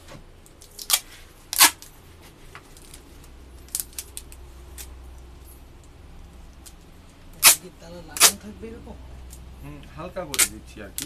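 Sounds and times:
tape tearing off roll: 0.6s - 1.9s, 7.4s - 7.6s.

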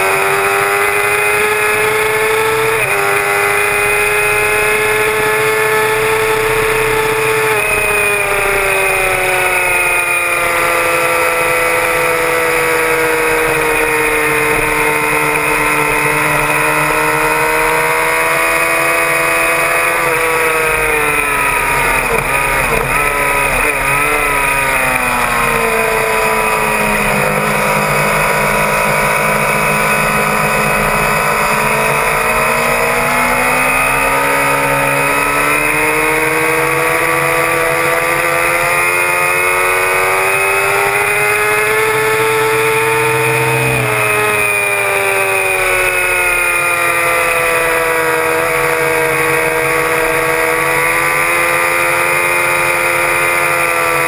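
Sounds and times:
motorcycle engine at high revs: 0.0s - 54.0s.

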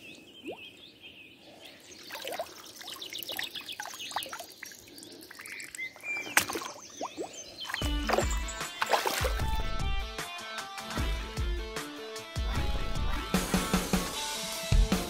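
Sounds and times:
birds chirping and singing: 0.0s - 10.1s
water splashing and dribbling: 1.9s - 10.0s.

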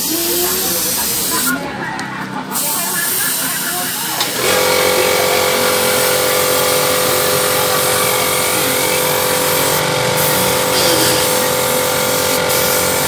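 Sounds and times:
spray gun hissing: 9.3s - 13.0s
steady machine hum: 10.4s - 12.1s.

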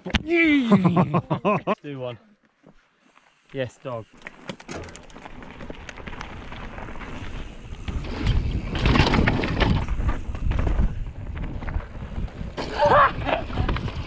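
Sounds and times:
bike rattling: 4.1s - 14.0s
wind on microphone: 6.3s - 14.0s.

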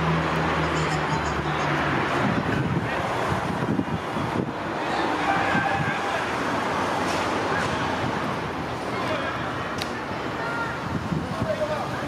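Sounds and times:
distant road traffic: 0.0s - 12.0s
wind buffeting microphone: 1.2s - 6.2s, 10.5s - 12.0s.

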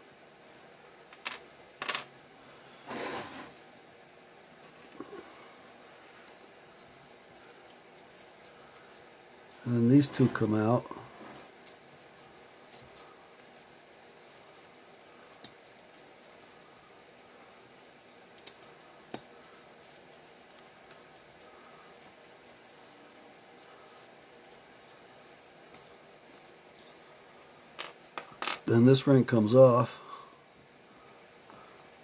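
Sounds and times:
handling small bolts and parts: 1.1s - 2.2s, 27.8s - 28.7s.

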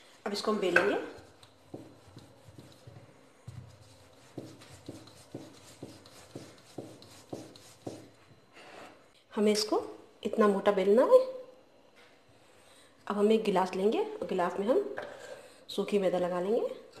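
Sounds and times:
rolling pin rubbing on dough: 1.1s - 8.4s.

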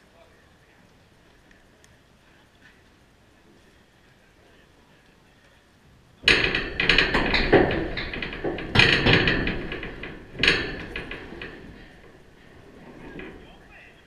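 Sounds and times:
chain-link fence struck and rattling: 6.2s - 13.8s.

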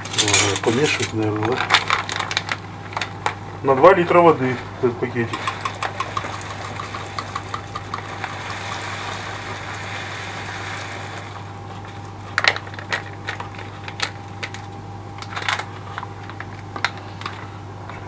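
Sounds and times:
low steady hum: 0.0s - 18.0s
utensil clinking against pot: 5.3s - 8.9s.

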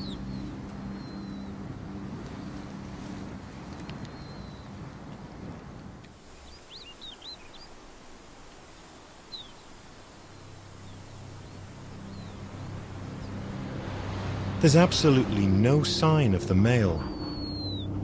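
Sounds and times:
wind: 0.0s - 18.0s
high swooping bird chirps: 17.0s - 18.0s.

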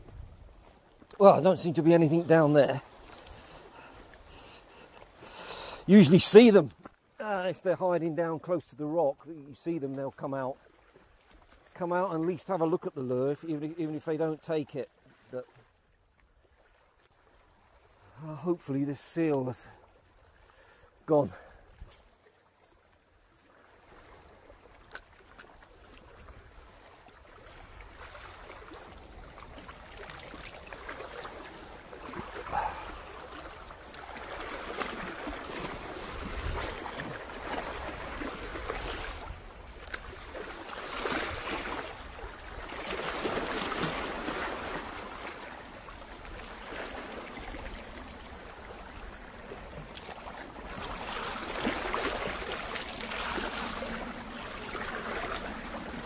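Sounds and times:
small waves washing over rocks: 23.3s - 56.0s.

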